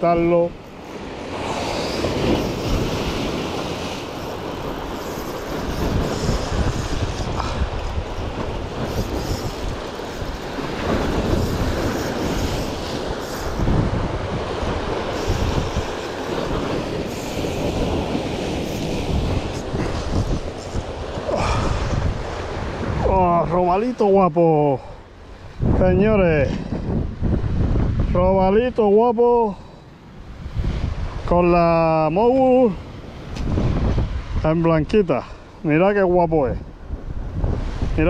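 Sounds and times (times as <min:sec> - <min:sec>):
wind buffeting microphone: 0:00.0 - 0:24.0, 0:24.8 - 0:28.7, 0:30.1 - 0:38.0
surf washing over rocks: 0:00.0 - 0:38.0
fishing reel cranking: 0:07.8 - 0:13.7, 0:15.0 - 0:19.6.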